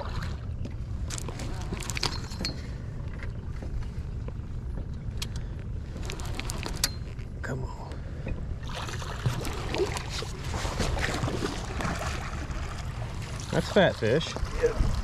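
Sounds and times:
boat motor running: 0.0 - 15.0.

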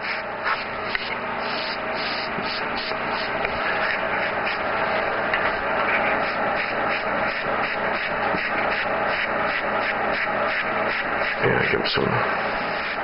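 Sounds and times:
airbrush hissing: 0.0 - 13.0.

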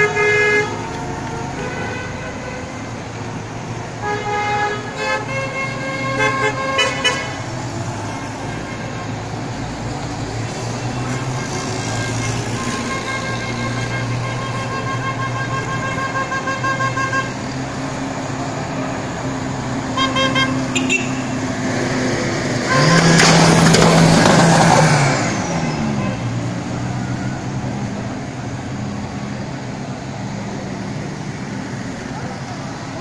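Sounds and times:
car horns honking: 0.0 - 9.5, 10.5 - 17.7, 19.4 - 21.6, 22.6 - 27.2
car engine passing: 20.8 - 33.0.

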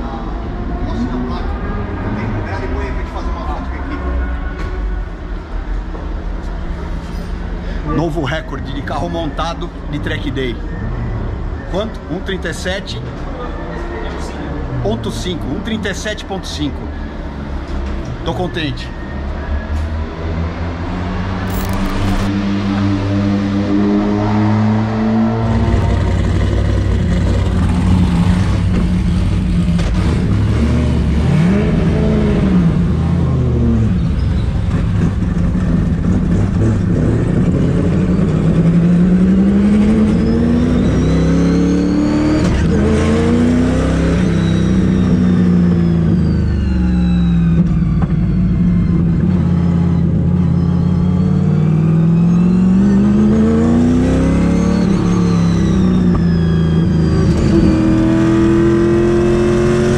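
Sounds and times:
car engine revving: 20.3 - 34.0, 34.6 - 59.9.

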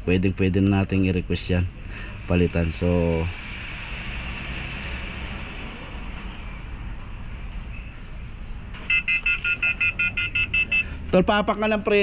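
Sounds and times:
rapid electronic beeping: 8.9 - 11.0.

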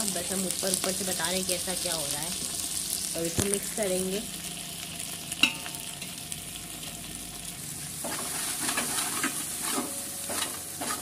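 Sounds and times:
vegetables sizzling in oil: 0.0 - 11.0
metal spatula scraping pot: 8.0 - 11.0.

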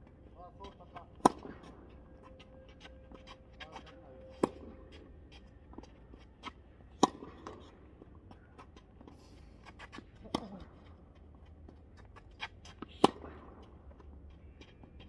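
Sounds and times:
racket hitting tennis ball: 1.1 - 1.8, 7.0 - 7.7, 12.8 - 13.5.

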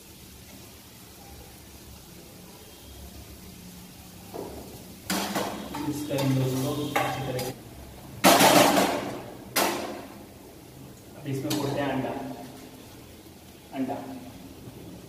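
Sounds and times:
spatula scraping frying pan: 5.1 - 7.6.

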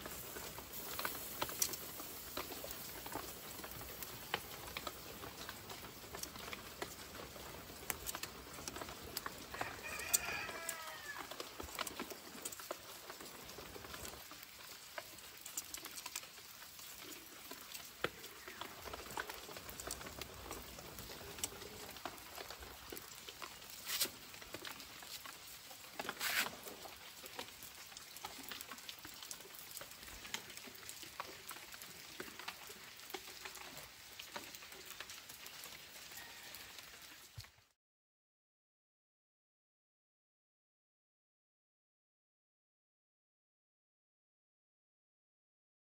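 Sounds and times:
faint sizzle: 0.0 - 37.7
wood fire crackling: 0.0 - 37.8
animal call: 9.5 - 11.4, 36.0 - 37.1.

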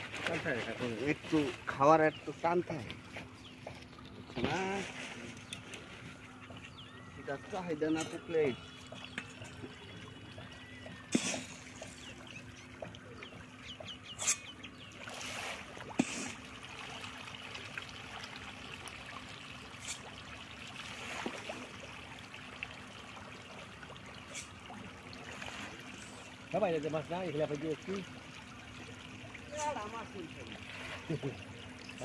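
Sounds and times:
fish splashing at water surface: 8.9 - 26.5.

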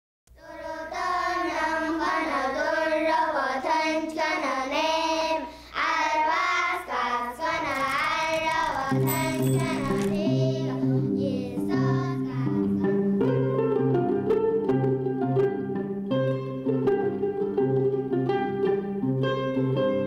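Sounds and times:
child singing slow melody: 0.4 - 13.0.

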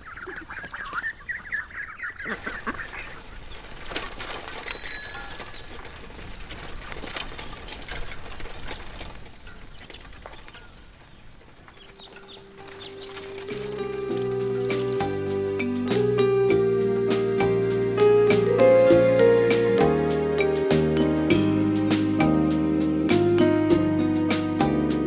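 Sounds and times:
duck quacking: 0.0 - 3.2
faint rattles and clicks: 2.8 - 16.0
bicycle bell ring: 4.6 - 5.5.

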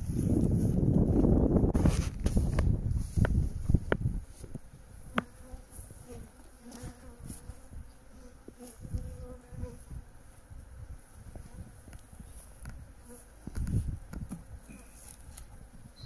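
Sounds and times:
bees buzzing: 4.2 - 14.9.

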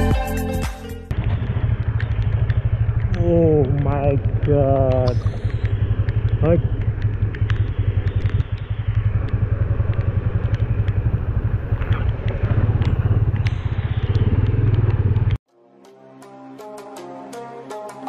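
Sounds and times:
soft music: 0.0 - 1.1, 15.5 - 18.0
motorcycle engine running: 1.1 - 15.4
sharp ticks: 1.1 - 15.4.

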